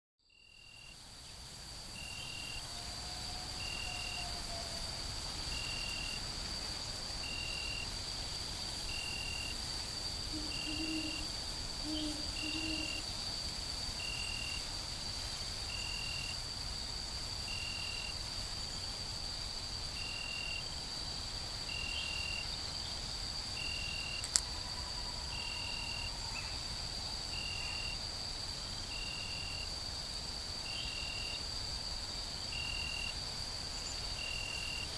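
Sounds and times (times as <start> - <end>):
crickets trilling: 0.3 - 34.9.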